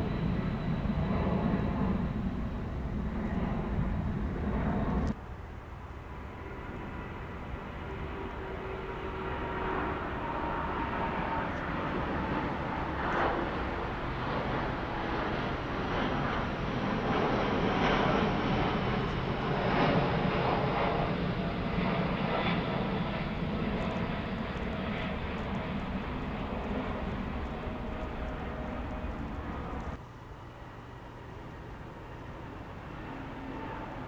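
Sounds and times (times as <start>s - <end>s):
jetliner climbing overhead: 0.0s - 34.0s.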